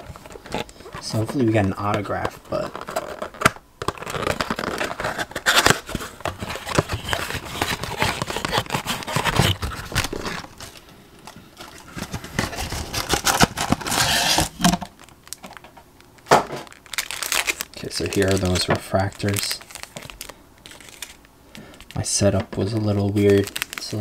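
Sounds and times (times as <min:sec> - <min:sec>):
rustling of pack wrappers: 0:00.0 - 0:24.0
tearing open cardboard box: 0:02.4 - 0:10.6, 0:11.9 - 0:14.8, 0:16.9 - 0:18.6, 0:23.3 - 0:24.0.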